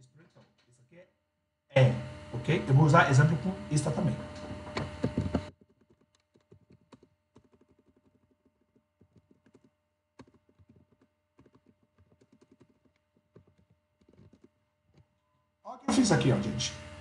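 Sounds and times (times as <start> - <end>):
computer keyboard typing: 4.7 - 15.1.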